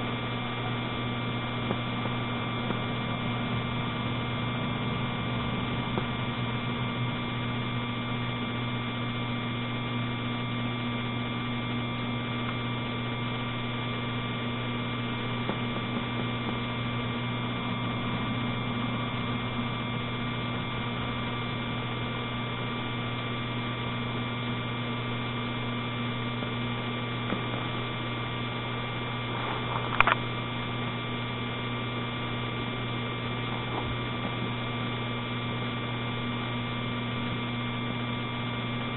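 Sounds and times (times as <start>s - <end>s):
electrical hum with whine: 0.0s - 38.9s
sharp click: 29.9s - 30.3s.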